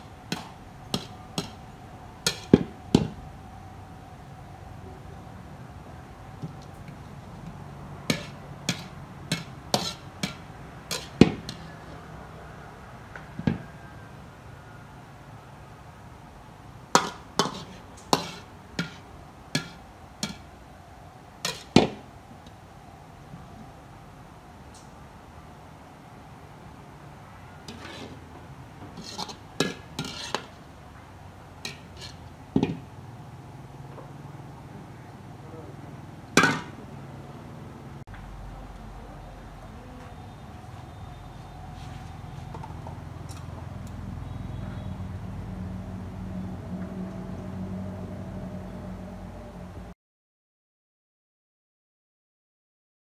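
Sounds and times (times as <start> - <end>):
metal ladle clanking on wok: 2.2 - 3.1, 8.1 - 11.7, 21.4 - 22.0, 29.0 - 30.5, 36.4 - 36.8
metal utensils clinking on pots: 8.1 - 11.8, 17.0 - 19.0, 21.5 - 21.9, 29.0 - 30.6.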